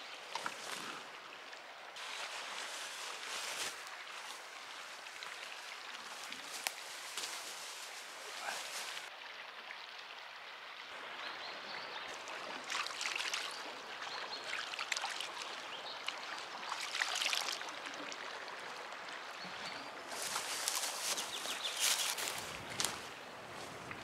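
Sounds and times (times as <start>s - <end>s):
river water flowing: 0.0s - 24.0s.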